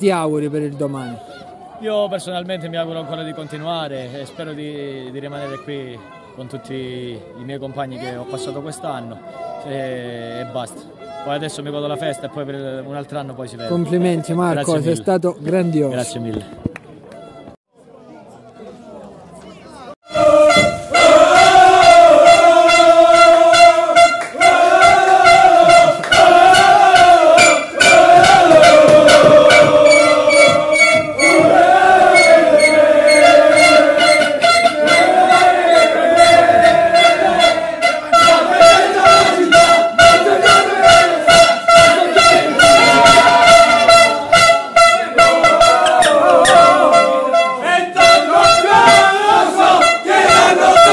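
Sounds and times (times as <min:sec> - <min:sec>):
group chanting in unison: 0:20.1 - 0:50.9.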